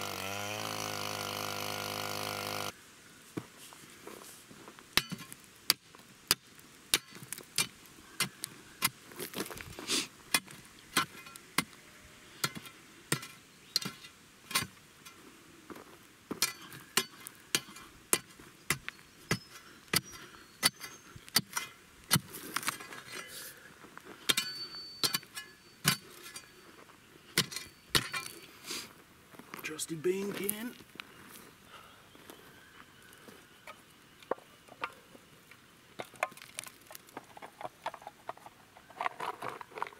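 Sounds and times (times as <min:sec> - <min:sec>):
crowbar striking stony ground: 0:05.0 - 0:11.8, 0:12.4 - 0:15.2, 0:16.3 - 0:23.1, 0:24.2 - 0:26.5, 0:27.3 - 0:28.4
metallic ring: 0:24.3 - 0:26.7, 0:27.4 - 0:28.5.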